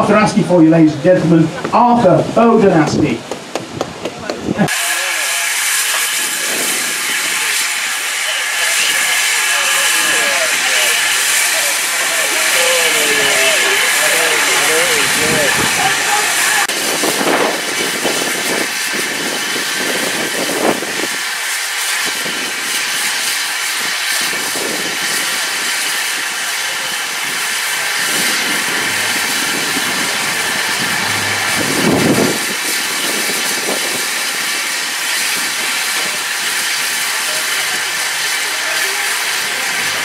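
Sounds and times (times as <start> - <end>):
steam locomotive hissing: 3.2 - 40.0
brief louder sound: 28.3 - 32.6.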